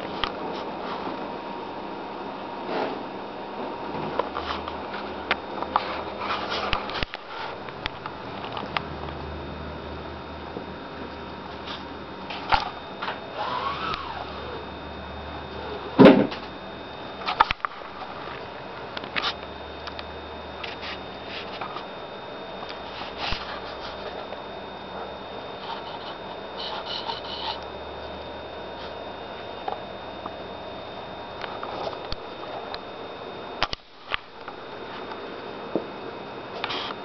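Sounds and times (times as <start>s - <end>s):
low hum and hiss: 0.0s - 37.0s
loud thump: 16.0s - 16.3s
cat sniffing: 25.6s - 27.6s.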